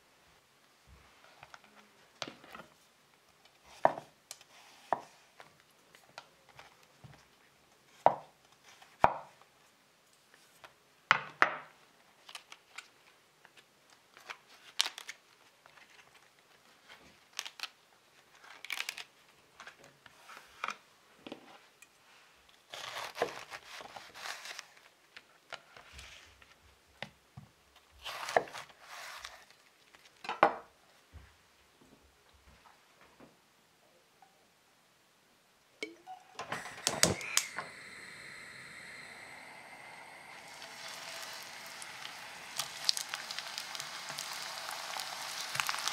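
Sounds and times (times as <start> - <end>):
knife cutting crisp leaves: 22.7 - 24.7.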